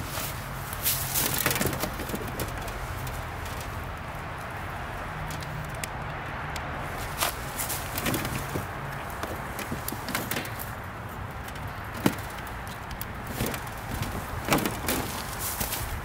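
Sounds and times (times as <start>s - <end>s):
panels knocking and clicking: 1.2s - 3.8s, 7.9s - 10.8s, 11.4s - 15.7s.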